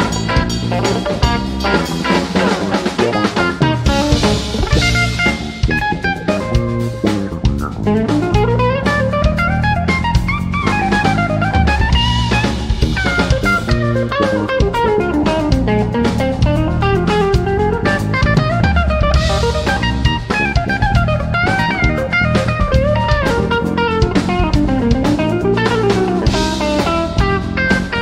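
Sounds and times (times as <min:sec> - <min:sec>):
drum kit: 0:00.0 - 0:28.0
electric bass: 0:00.0 - 0:28.0
electric guitar: 0:00.0 - 0:28.0.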